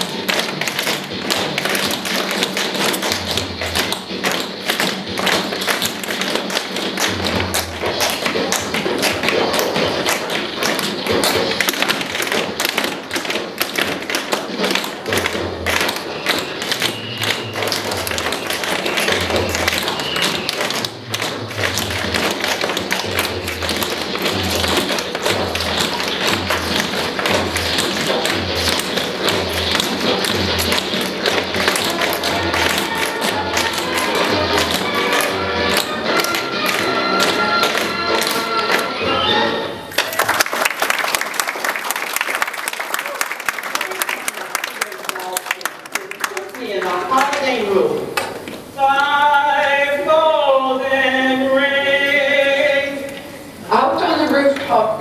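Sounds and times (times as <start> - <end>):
tap shoes clicking and stomping: 0.0 - 38.9.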